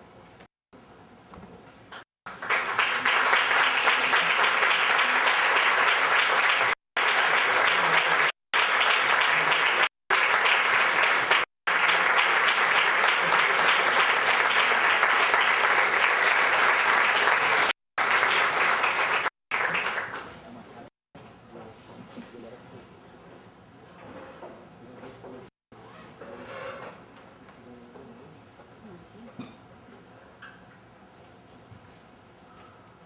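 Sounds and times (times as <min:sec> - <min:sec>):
audience applauding: 0:01.9 - 0:20.6.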